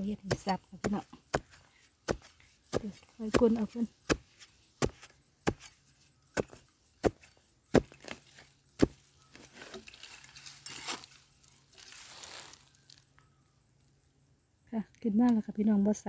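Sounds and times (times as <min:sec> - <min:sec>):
spade chopping into stony soil: 0:00.0 - 0:11.2
scraping and rustling of earth: 0:00.0 - 0:13.2.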